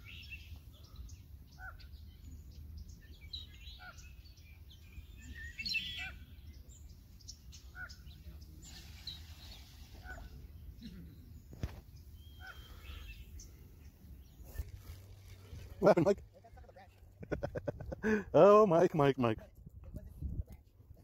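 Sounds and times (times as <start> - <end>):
bird chirps and calls: 0.0 - 15.8.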